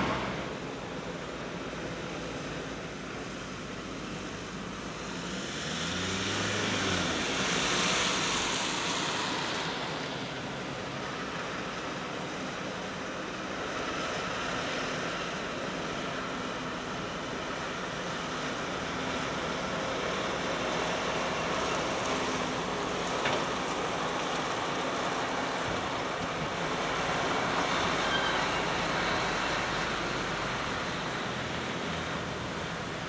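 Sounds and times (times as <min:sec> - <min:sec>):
tyre hiss on wet road: 0:00.0 - 0:15.9
truck engines rumbling: 0:00.0 - 0:33.0.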